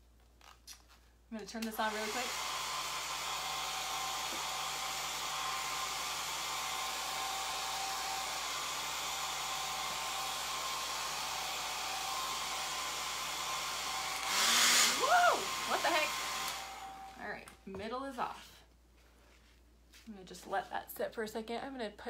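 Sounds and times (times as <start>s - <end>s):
hair dryer running: 1.7s - 17.4s.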